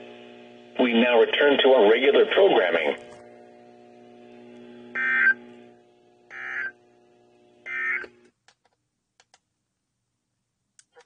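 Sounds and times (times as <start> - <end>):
steady low hum: 0.0 - 11.0
short digital data bursts: 6.3 - 6.8.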